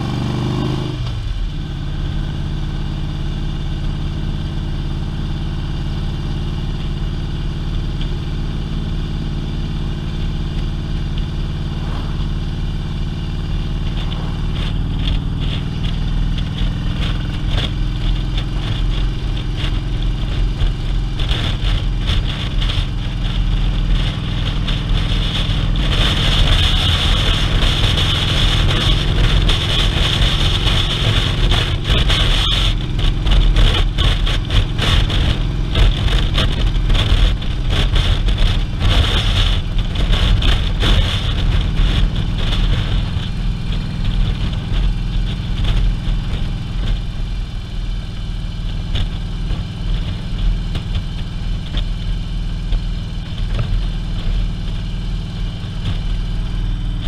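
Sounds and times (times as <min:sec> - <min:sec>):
motorcycle engine running: 0:00.0 - 0:57.0
wind rushing past: 0:10.3 - 0:17.6.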